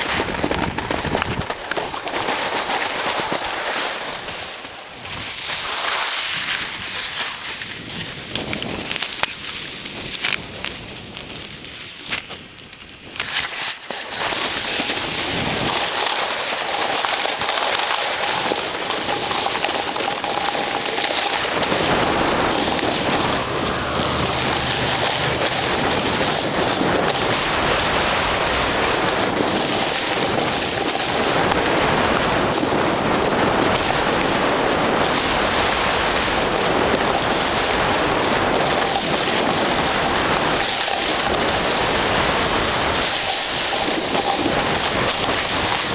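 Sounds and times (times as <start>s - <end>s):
wind on microphone: 0.0s - 16.0s, 16.7s - 45.9s
snow hissing and scraping underfoot: 2.5s - 8.8s, 13.2s - 17.0s, 17.6s - 31.8s.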